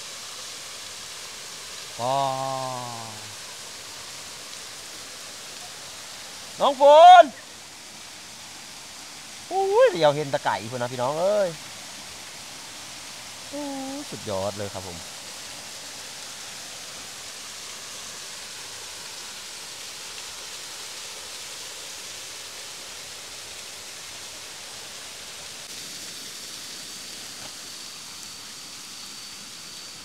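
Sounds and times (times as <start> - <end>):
waterfall rushing: 0.0 - 26.7
thin high tone: 2.0 - 3.3.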